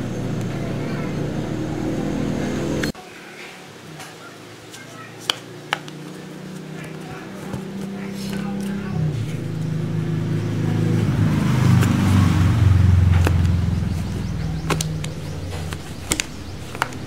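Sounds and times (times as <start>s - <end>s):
vehicle engine running: 0.0s - 3.0s, 5.9s - 17.0s
sharp clicks: 14.4s - 17.0s.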